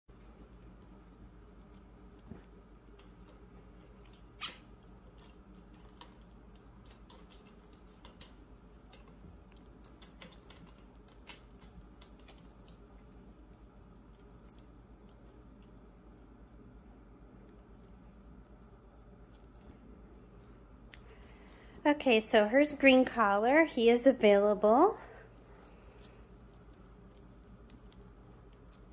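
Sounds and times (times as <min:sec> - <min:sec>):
low room hum: 0:00.1 - 0:28.9
kittens tapping and clicking: 0:02.9 - 0:16.8
kitten squeaks: 0:04.4 - 0:04.7.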